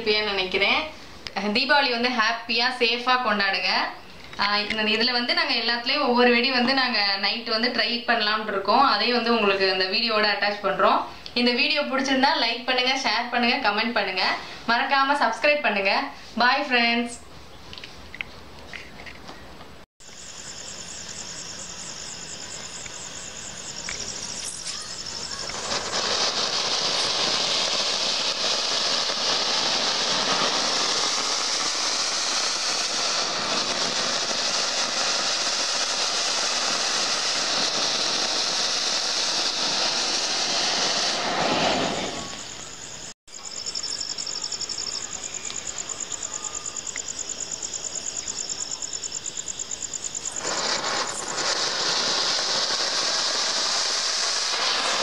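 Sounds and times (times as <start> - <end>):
firework fountain hissing: 0.0 - 16.9, 20.0 - 55.0
crickets chirping: 20.0 - 55.0.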